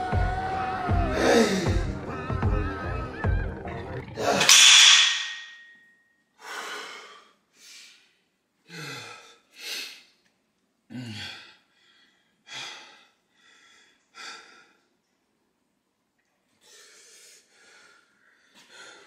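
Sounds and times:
man sighing: 1.1s - 1.8s, 10.9s - 11.5s
man breathing heavily: 1.1s - 2.0s, 6.4s - 10.2s, 10.9s - 15.0s, 16.6s - 19.0s.

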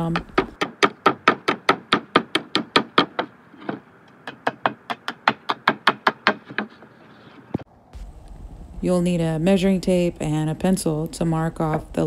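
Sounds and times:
hammer striking nails in wood: 0.1s - 6.9s.

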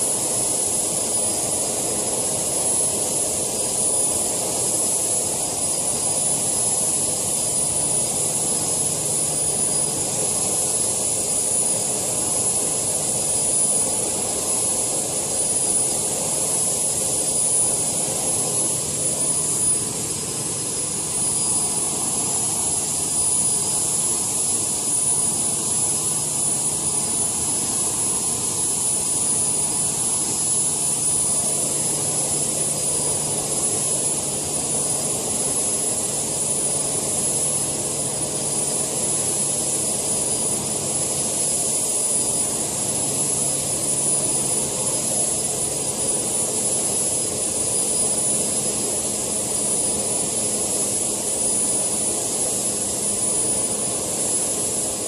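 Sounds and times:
model turbine whining: 0.0s - 55.0s.

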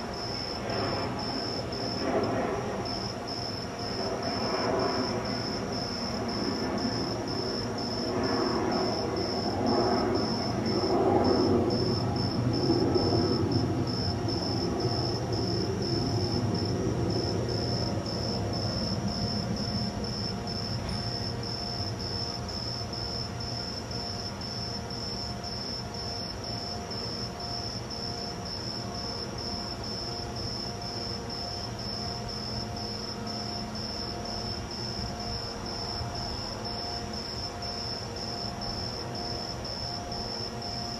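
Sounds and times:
pulsing high-pitched tone: 0.0s - 25.6s
outdoor background rumble: 0.0s - 40.9s.

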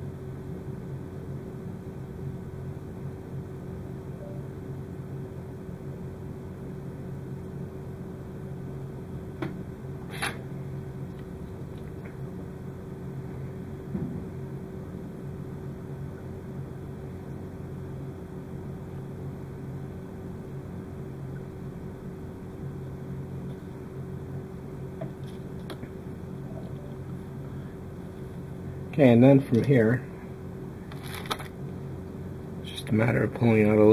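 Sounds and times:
low background hum: 0.0s - 33.9s
light clicks of small components: 29.5s - 29.8s.

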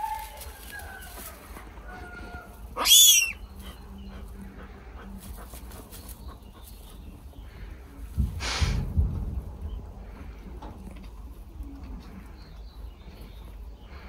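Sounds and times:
lynx kitten crying: 2.8s - 3.4s.

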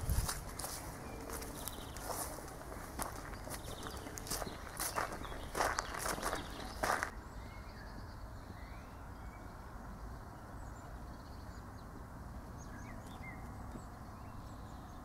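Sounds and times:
footstep on gravel: 0.0s - 7.1s
bird chirps: 3.0s - 9.5s.

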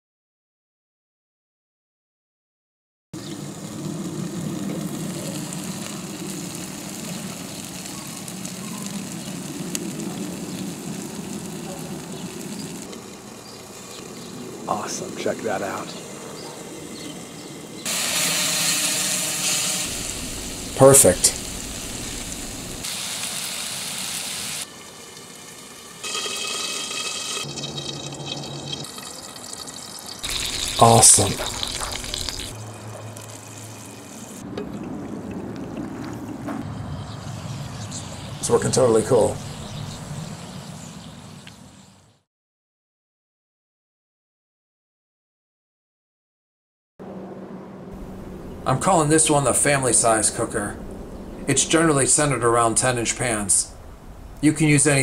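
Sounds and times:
meat sizzling in a skillet: 5.0s - 14.3s, 17.9s - 34.4s
low rumble: 19.9s - 22.8s, 48.0s - 54.4s.

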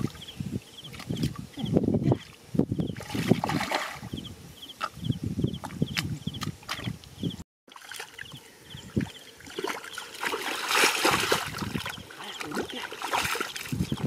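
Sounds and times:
feet wading through muddy water: 7.7s - 14.0s.

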